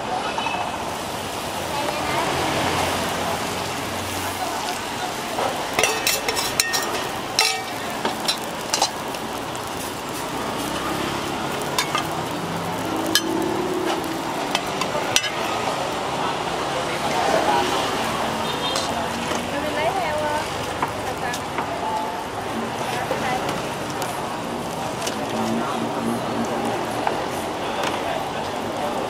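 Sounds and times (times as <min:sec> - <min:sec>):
bread frying in oil: 0:00.3 - 0:29.0
metal spatula clicking on pan: 0:05.8 - 0:09.1, 0:13.1 - 0:13.4.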